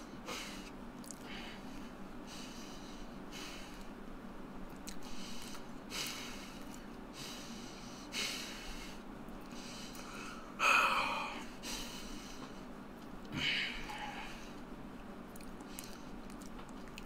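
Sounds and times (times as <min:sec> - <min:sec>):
man breathing heavily: 0:00.0 - 0:04.0, 0:05.0 - 0:14.7.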